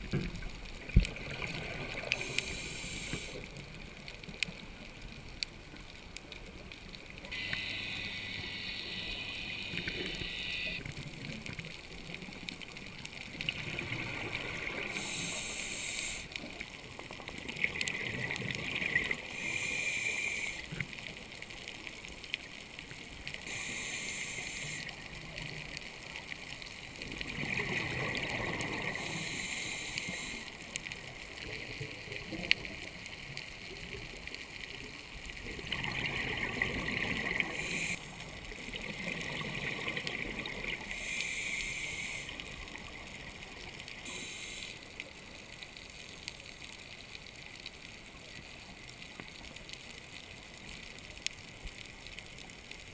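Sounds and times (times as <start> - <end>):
exhaled bubbles gurgling: 0.0 - 3.9, 7.2 - 21.1, 26.9 - 30.4, 35.0 - 44.6.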